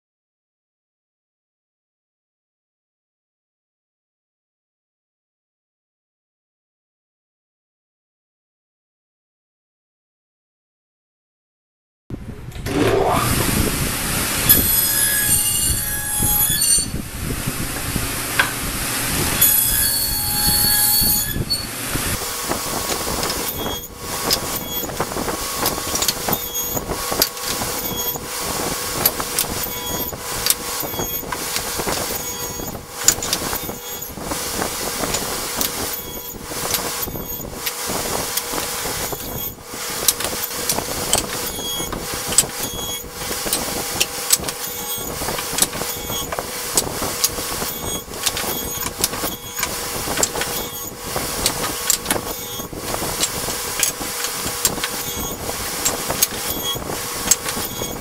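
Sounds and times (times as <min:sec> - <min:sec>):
table saw cutting wood: 0:12.6 - 0:58.0.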